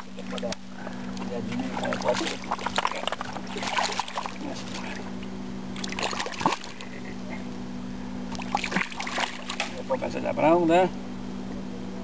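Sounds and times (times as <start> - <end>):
fish splashing in water: 0.0 - 7.2, 8.3 - 10.0
steady low hum: 0.0 - 12.0.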